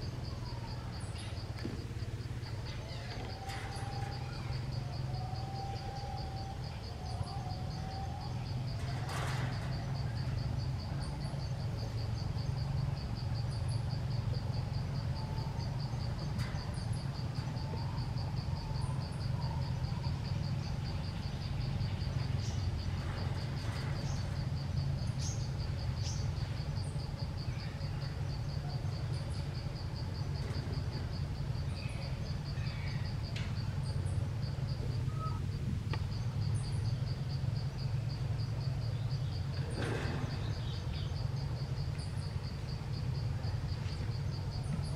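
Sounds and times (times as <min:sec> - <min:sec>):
insect trilling: 0:00.0 - 0:39.6
low steady hum: 0:00.0 - 0:44.9
rustle: 0:00.0 - 0:44.9
faint bird chirps: 0:00.4 - 0:29.6, 0:31.6 - 0:38.0.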